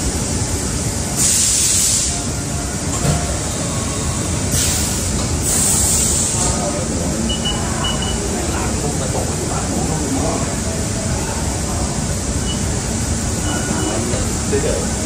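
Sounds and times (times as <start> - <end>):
short hiss bursts: 1.2 - 2.3, 4.5 - 6.4.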